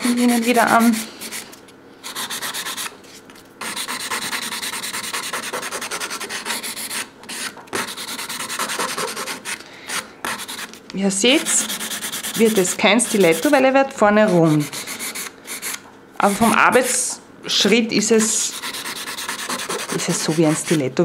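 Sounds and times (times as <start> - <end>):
nail file scraping a nail: 2.1 - 2.9, 3.6 - 10.8, 11.4 - 13.6, 18.1 - 20.8.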